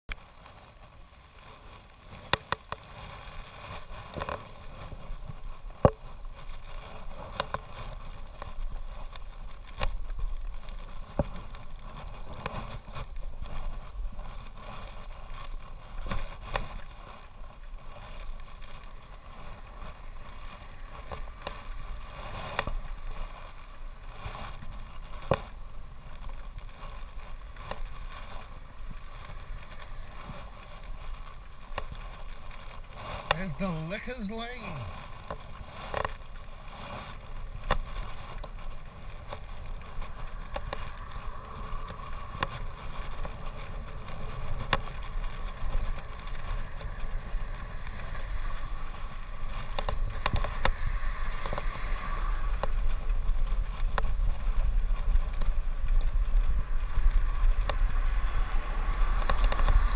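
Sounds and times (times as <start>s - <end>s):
wind and road noise: 0.1s - 59.9s
bicycle clicks and knocks: 35.2s - 51.8s, 52.5s - 59.9s.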